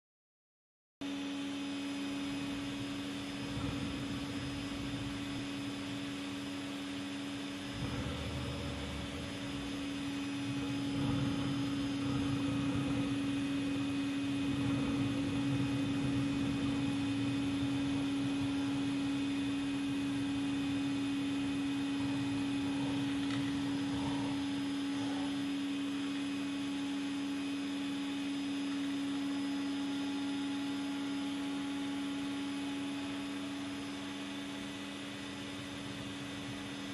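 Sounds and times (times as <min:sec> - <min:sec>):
vacuum cleaner humming: 0:01.0 - 0:36.9
low rumbles: 0:02.4 - 0:06.4, 0:07.3 - 0:25.5.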